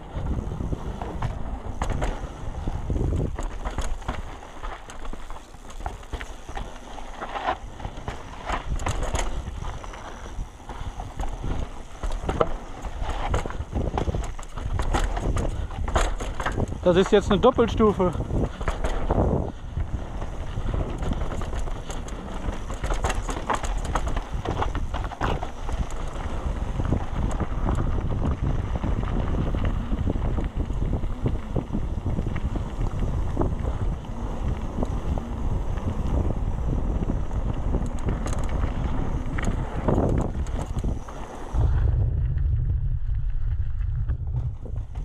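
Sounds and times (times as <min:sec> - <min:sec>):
bike chain and frame clattering: 0:00.0 - 0:41.6
tyres rumbling over dirt: 0:00.0 - 0:42.8
wind rushing on microphone: 0:00.0 - 0:45.0
dull low rumble: 0:18.2 - 0:45.0.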